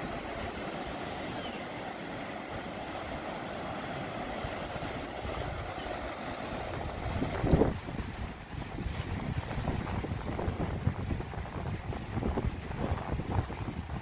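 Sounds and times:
waves washing up beach: 0.0 - 14.0
wind rumbling on microphone: 0.0 - 14.0.

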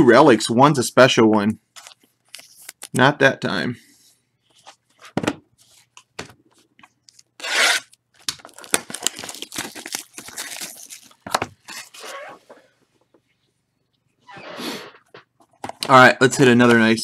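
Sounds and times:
packaging crackling and rustling: 1.8 - 3.0, 7.0 - 12.3
packaging ripping: 7.2 - 12.4.

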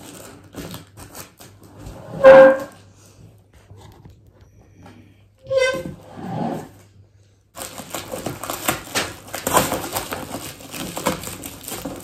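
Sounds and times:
plastic packaging crinkling: 0.0 - 1.7, 7.6 - 12.0.

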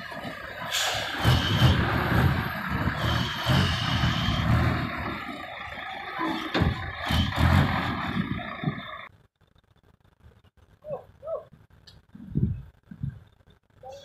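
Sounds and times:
diesel truck engine rumbling: 0.0 - 10.2.

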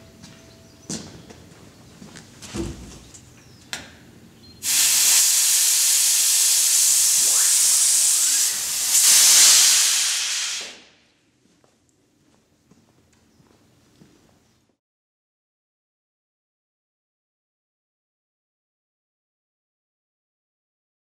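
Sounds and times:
compressed air hissing: 4.6 - 11.0.

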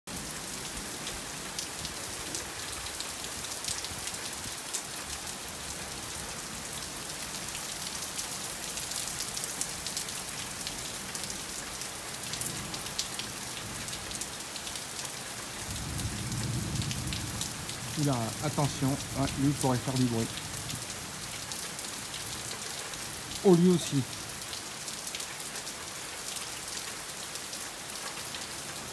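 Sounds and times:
heavy rain downpour: 0.1 - 28.9
raindrops ticking close by: 0.1 - 28.9.

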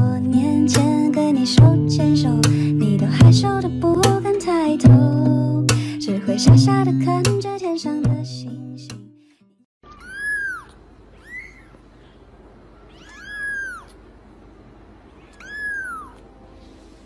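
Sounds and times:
kitten meowing: 9.9 - 11.8, 12.8 - 14.0, 15.2 - 16.3.

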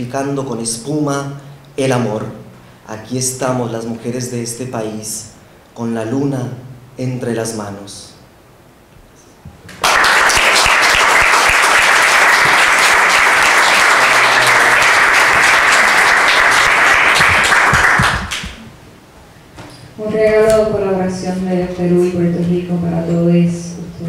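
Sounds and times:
audience applauding: 9.7 - 18.6.

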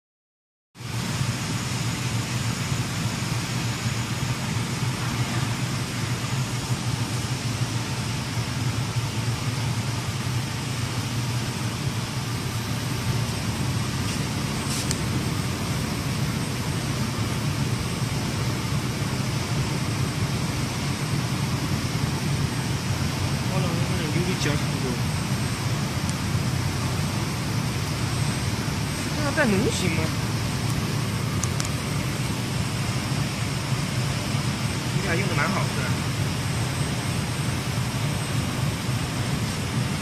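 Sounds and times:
machinery humming: 0.8 - 40.0
short high hiss: 14.0 - 15.0.

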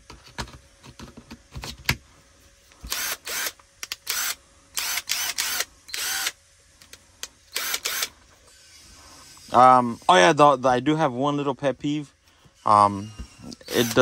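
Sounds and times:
impact driver motor bursts: 2.8 - 6.4, 7.5 - 9.0, 13.4 - 14.0.

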